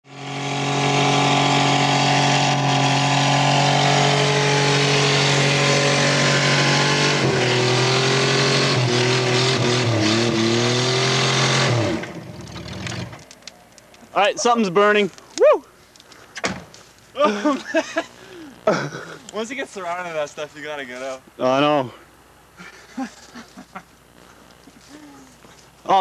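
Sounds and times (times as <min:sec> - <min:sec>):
car engine revving high: 0:00.1 - 0:13.2.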